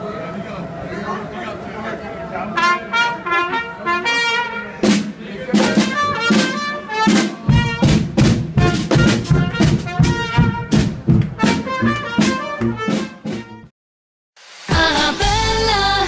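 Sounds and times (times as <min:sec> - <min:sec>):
brass band playing: 0:02.5 - 0:13.7
steady drum beat: 0:04.8 - 0:13.6.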